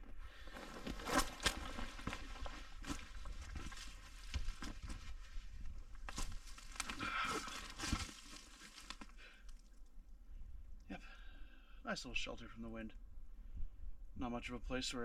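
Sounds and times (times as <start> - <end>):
footsteps crunching on dry brush: 0.3 - 9.1.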